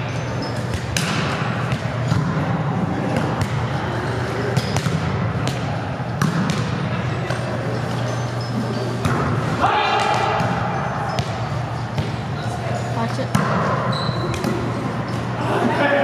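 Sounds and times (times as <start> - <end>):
chatter of voices: 14.6 - 16.0.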